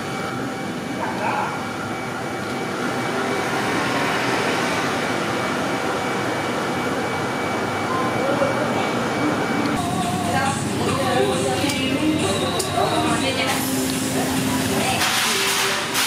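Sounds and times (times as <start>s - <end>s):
heavy trucks driving past: 2.6s - 7.8s.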